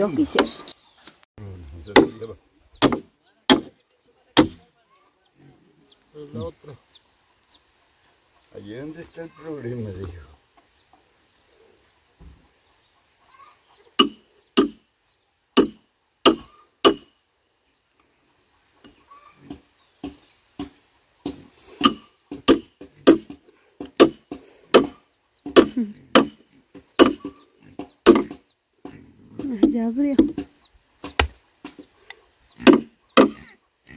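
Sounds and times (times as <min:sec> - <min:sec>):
hammer striking iron wedges: 0:01.9 - 0:03.7, 0:04.4 - 0:04.6, 0:14.0 - 0:14.8, 0:15.6 - 0:17.1, 0:21.8 - 0:26.4, 0:27.0 - 0:27.4, 0:28.0 - 0:28.4, 0:32.6 - 0:33.5.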